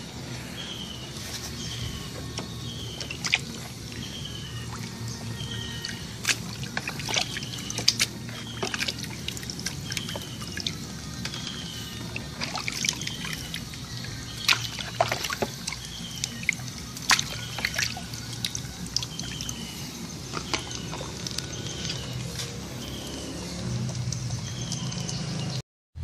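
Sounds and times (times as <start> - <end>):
hose water running into basin: 0.3 - 25.4
splashes and knocks: 1.5 - 19.6.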